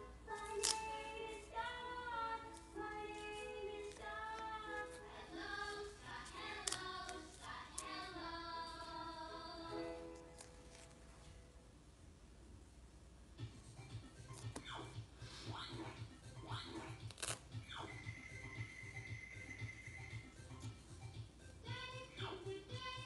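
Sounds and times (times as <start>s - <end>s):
song with high singing voice: 0.0s - 10.4s.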